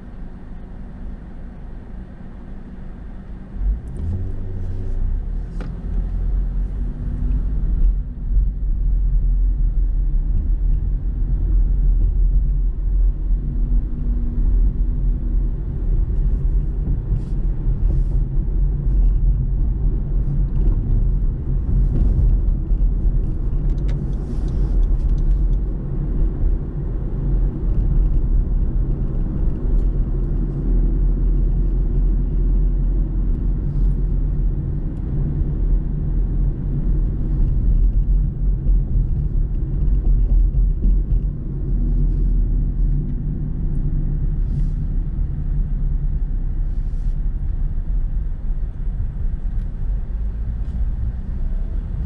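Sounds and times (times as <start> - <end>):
car engine and road noise: 0.0 - 52.0.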